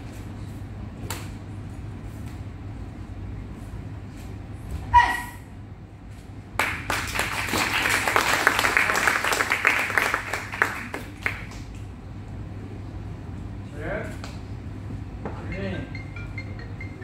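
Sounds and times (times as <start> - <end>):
people clapping: 6.6 - 11.9.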